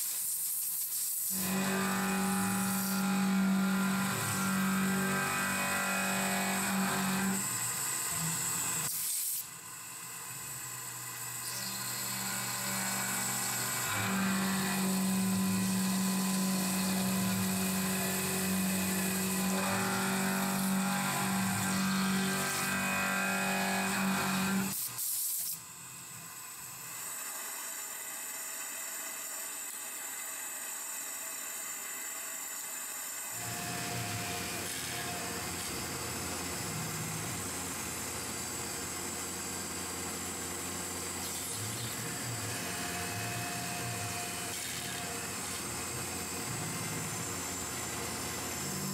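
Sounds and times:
milling machine spindle whine: 1.2 - 25.4, 26.0 - 48.9.

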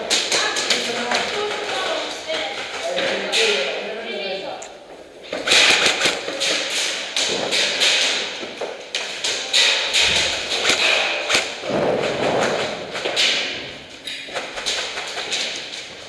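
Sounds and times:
pellets hitting wooden walls: 0.0 - 4.0, 5.2 - 16.0
airsoft guns firing: 5.3 - 15.8.

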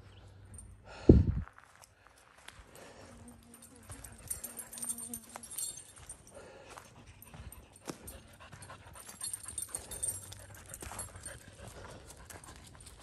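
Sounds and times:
footsteps on a trail: 0.0 - 13.0
dog panting: 2.8 - 13.0.

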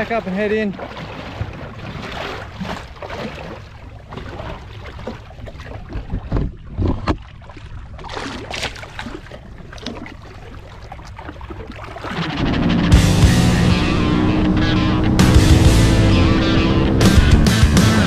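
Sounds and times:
water lapping against boat hull: 0.0 - 17.3
low thumps: 12.2 - 18.0.

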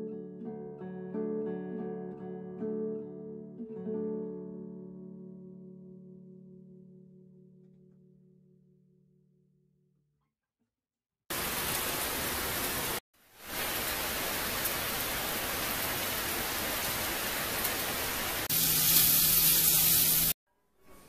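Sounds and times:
heavy rain pouring: 11.3 - 20.4.

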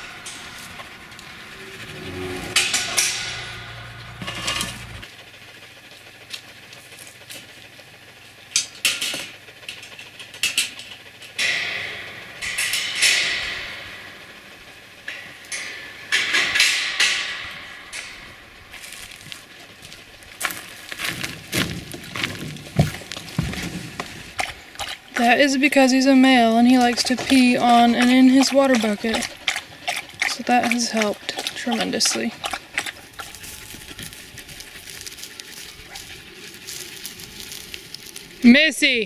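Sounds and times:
gate rattling: 0.0 - 5.1, 10.4 - 19.1
metal kennel panels clanking: 0.0 - 5.1, 10.4 - 18.6.

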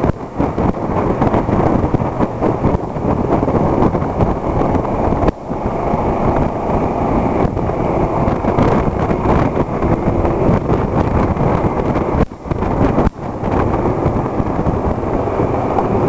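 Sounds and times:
road noise: 0.0 - 16.0
wind buffeting microphone: 0.0 - 16.0.

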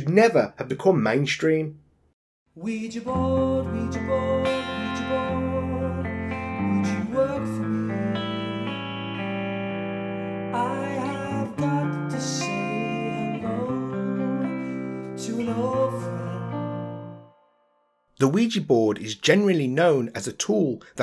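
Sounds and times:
person singing: 2.6 - 9.4, 10.2 - 17.3
guitar-led song: 2.6 - 18.4.

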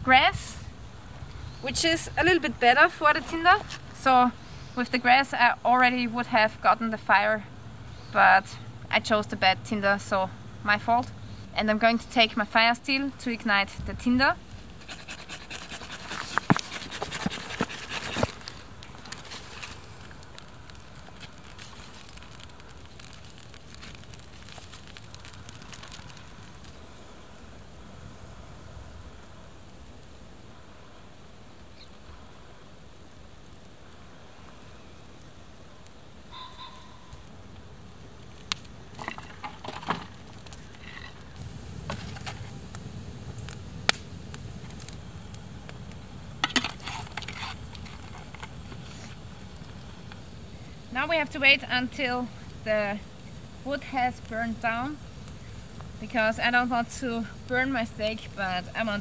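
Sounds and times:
campfire flames rushing: 0.0 - 59.0
fire crackling and popping: 0.0 - 59.0
dry grass and twigs rustling: 13.9 - 27.4, 33.2 - 59.0.

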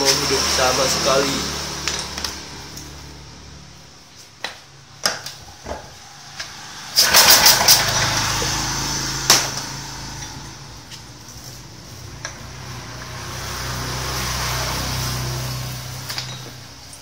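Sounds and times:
small engine starting and running: 0.0 - 3.3, 6.2 - 17.0.

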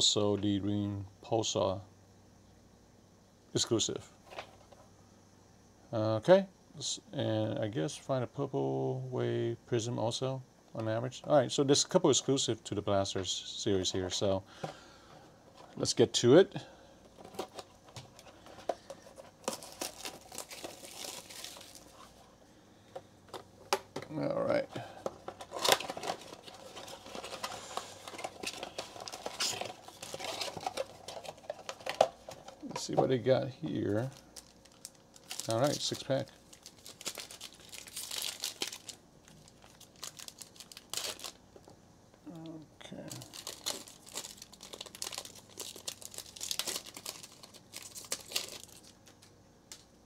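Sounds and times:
foil wrapper crinkling: 17.1 - 22.2, 24.8 - 33.0, 33.7 - 41.4, 43.1 - 49.8.

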